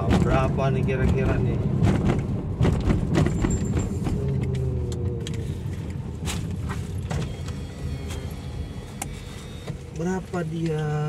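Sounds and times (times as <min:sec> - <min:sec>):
sharp clicks and knocks: 0:00.0 - 0:07.3
engine and road rumble: 0:00.0 - 0:11.0.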